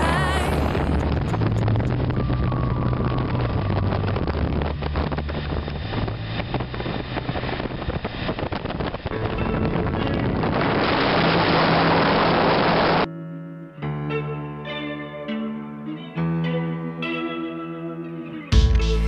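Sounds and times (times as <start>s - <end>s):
wind buffeting microphone: 0.0s - 13.1s.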